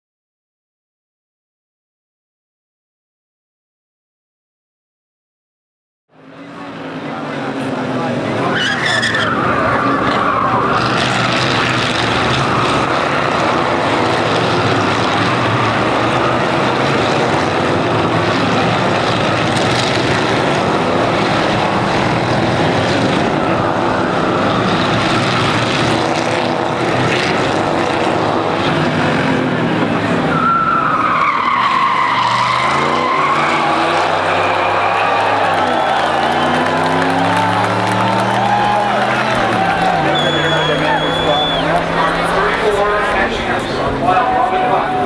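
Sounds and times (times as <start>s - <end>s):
race car engines roaring: 6.1s - 45.0s
engine revving: 6.5s - 30.6s, 31.6s - 45.0s
tyres squealing: 8.4s - 17.3s, 30.2s - 45.0s.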